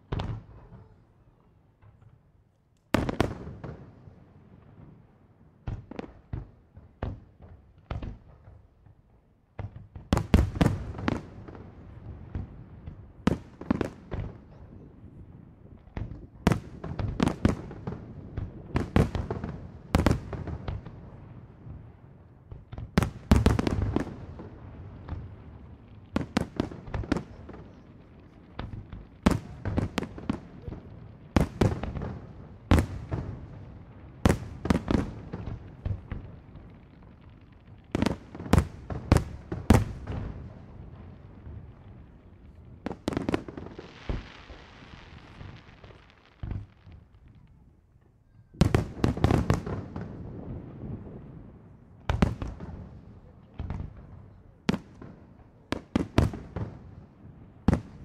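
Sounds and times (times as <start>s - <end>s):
fireworks bursting in bangs: 0.0s - 1.0s, 9.6s - 14.6s, 22.5s - 41.0s, 42.8s - 47.2s, 48.6s - 51.3s, 52.1s - 54.1s, 54.7s - 57.0s, 57.6s - 58.0s.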